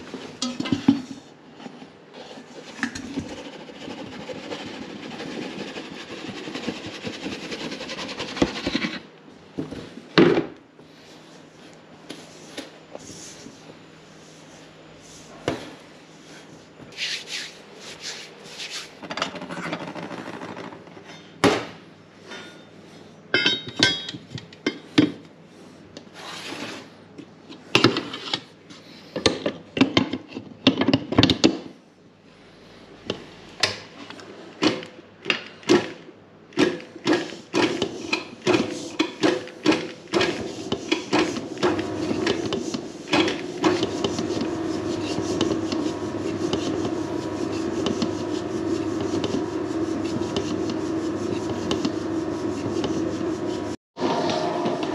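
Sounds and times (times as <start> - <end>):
metal bowl clattering and scraping: 0.0 - 7.3
mixer beater knocking: 36.6 - 54.9
mixer motor humming: 41.1 - 54.9.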